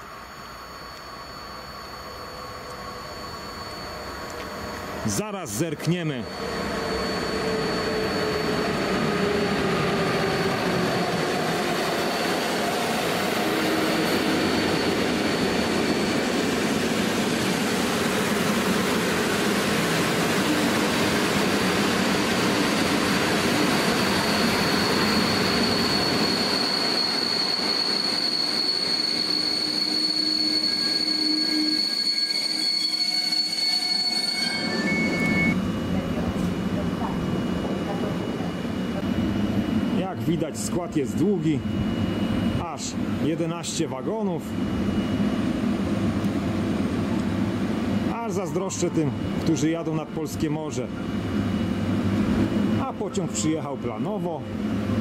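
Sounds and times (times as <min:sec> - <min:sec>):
train brake squeal: 0:00.0 - 0:35.6, 0:37.3 - 0:45.5
locomotive motor whine: 0:00.0 - 0:49.9
train rolling noise: 0:00.0 - 0:55.0.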